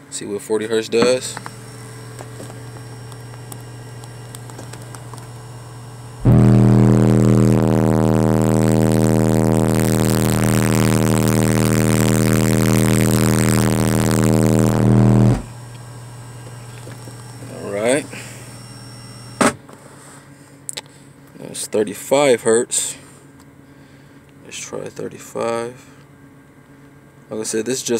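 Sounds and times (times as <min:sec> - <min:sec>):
distorted subwoofer test tone: 0:01.0 - 0:05.3, 0:06.2 - 0:15.8, 0:16.5 - 0:18.3.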